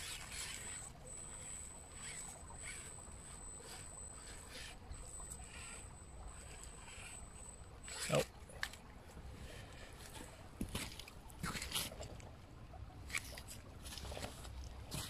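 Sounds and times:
electric motor whine: 0:00.0 - 0:08.2.

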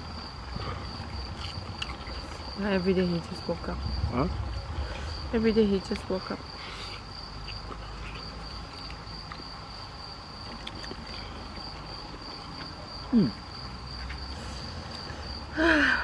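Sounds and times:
cricket singing: 0:00.0 - 0:16.0.

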